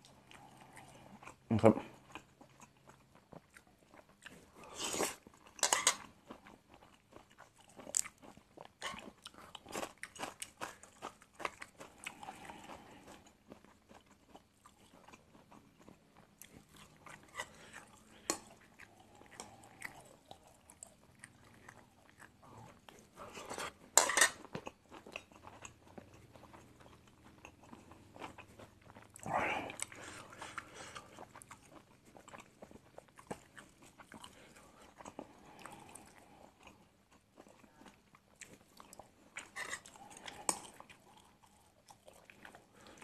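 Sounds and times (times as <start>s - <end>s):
man chewing food: 0.0s - 43.0s.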